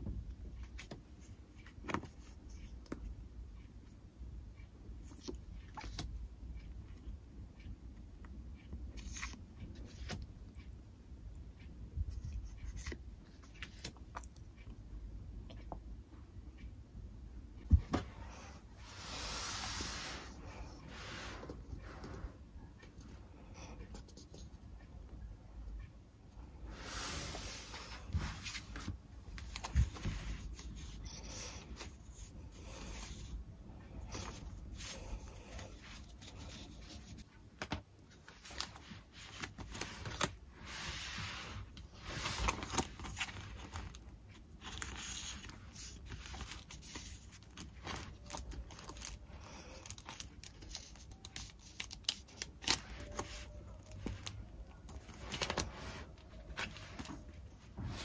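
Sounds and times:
paper rustling: 38.1 - 44.0, 44.6 - 58.0.

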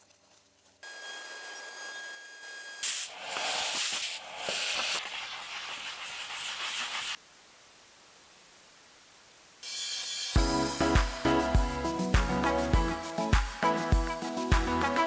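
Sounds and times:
steady hiss with high whine: 0.8 - 12.4
sanding wood: 2.9 - 7.2.

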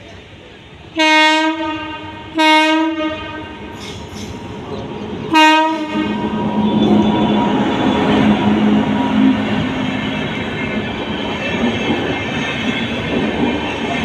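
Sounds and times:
locomotive hum: 0.0 - 14.0
locomotive horn blasts: 1.0 - 3.6, 5.3 - 8.3
train wheels clattering on rails: 3.7 - 14.0.

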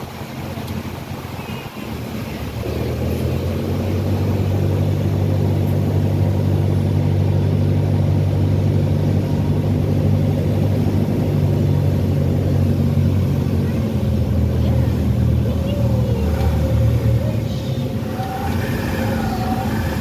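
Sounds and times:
propeller plane engine droning: 0.0 - 20.0.

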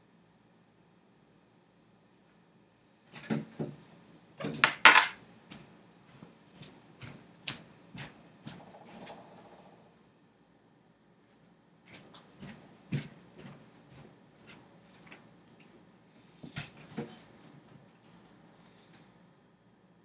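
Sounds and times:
hard objects clicking and knocking: 4.4 - 5.7.

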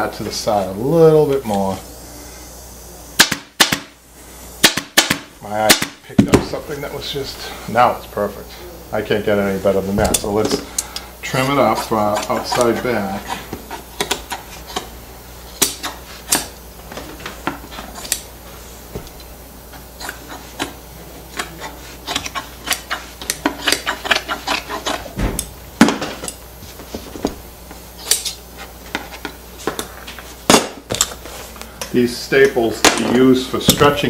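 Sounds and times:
shears snipping fabric: 10.0 - 25.2, 26.1 - 31.7.

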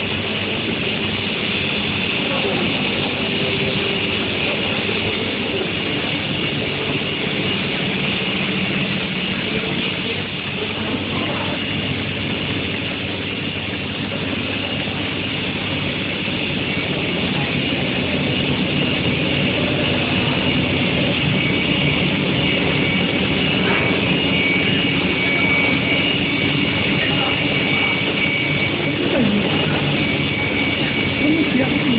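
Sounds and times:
dense machinery noise: 0.0 - 31.9
high steady machine whine: 0.0 - 31.9.

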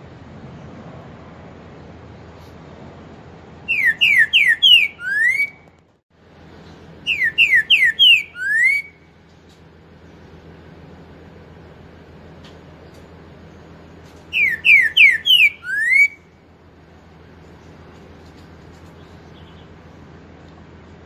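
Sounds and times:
bird singing whistled song: 3.7 - 5.7, 7.0 - 9.1, 14.3 - 16.3, 19.0 - 19.7.

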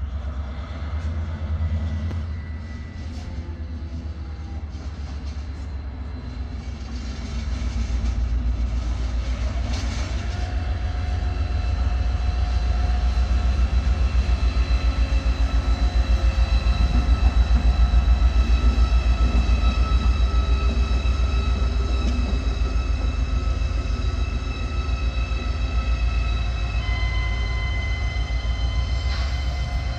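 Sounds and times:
locomotive engine throbbing: 6.7 - 29.9.

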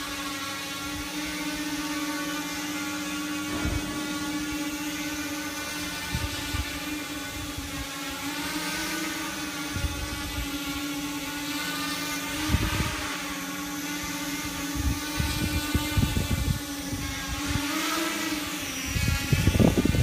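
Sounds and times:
drone propellers whining: 0.0 - 20.0
low rumbles: 3.5 - 4.7.

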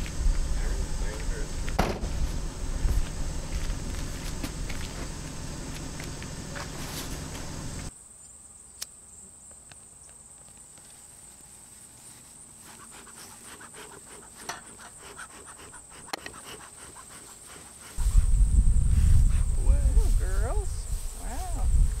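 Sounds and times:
low rumble: 0.0 - 7.9, 18.0 - 22.0
insects trilling: 0.0 - 22.0
pine needles rustling and crackling: 2.2 - 7.9.

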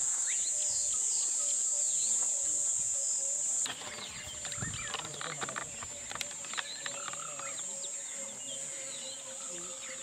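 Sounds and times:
birds chirping: 0.0 - 10.0
small clicks: 3.7 - 7.5.

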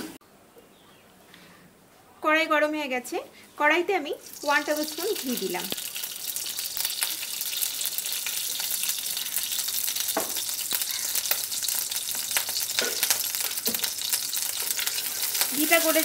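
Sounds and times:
ghee sizzling and crackling: 3.7 - 16.0.

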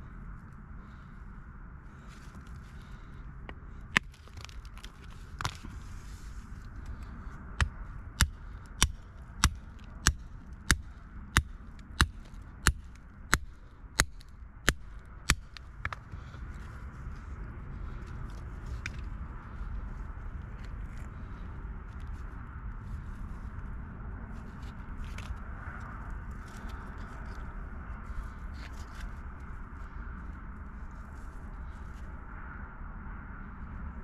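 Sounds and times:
hammer striking rock: 7.6 - 16.0.

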